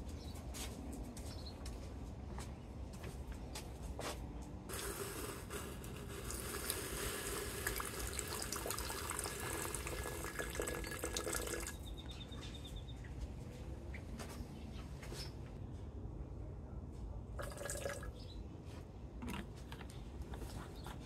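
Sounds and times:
water pouring into glass beaker: 4.7 - 11.8.

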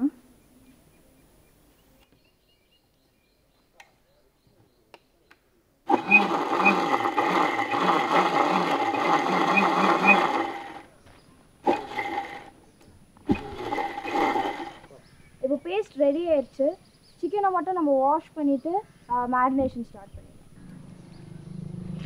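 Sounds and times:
mixer grinder running: 5.9 - 10.8, 11.6 - 12.5, 13.3 - 14.9.

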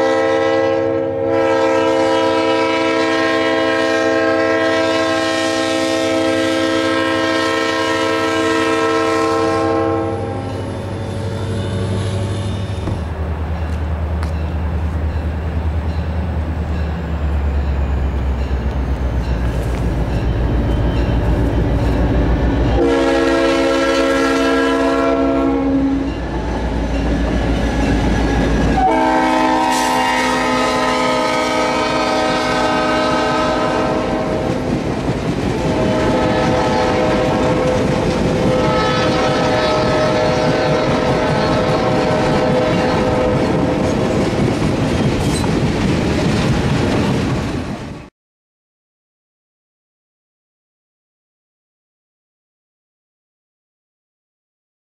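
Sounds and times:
train horn blasts: 0.0 - 12.8, 22.6 - 26.5, 28.6 - 34.8, 35.6 - 44.0
train rumble: 1.2 - 48.1
train wheels clattering on rails: 12.8 - 22.8, 34.2 - 47.9.

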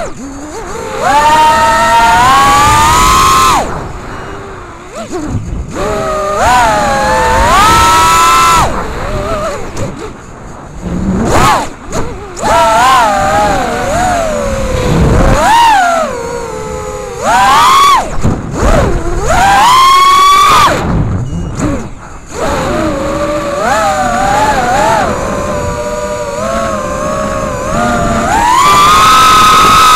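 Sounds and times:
quadcopter motors whining: 0.0 - 29.9.

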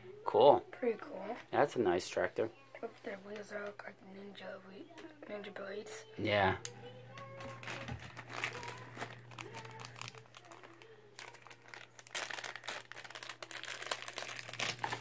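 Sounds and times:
low steady hum: 3.9 - 15.0
packaging crinkling: 6.8 - 15.0.

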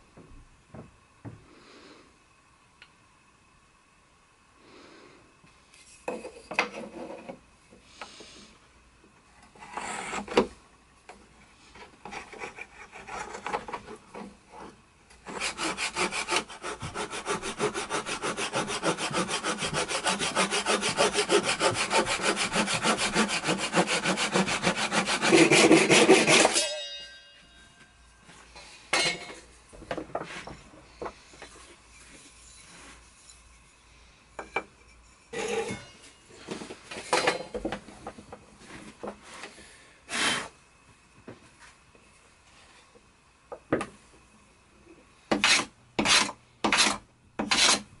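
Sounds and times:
hand saw cutting wood: 9.6 - 10.5, 12.1 - 14.0, 15.2 - 26.6, 40.1 - 40.5, 45.3 - 47.9.

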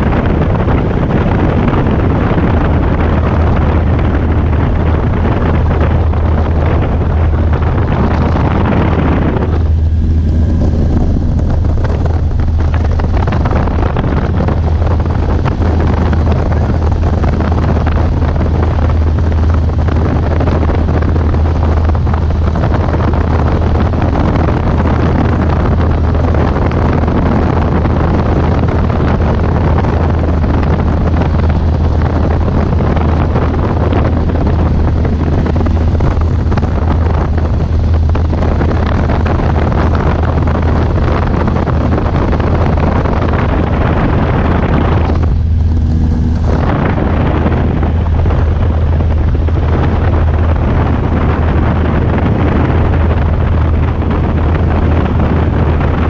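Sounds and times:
light aircraft engine droning: 0.0 - 56.0
wind rushing past: 0.0 - 56.0.

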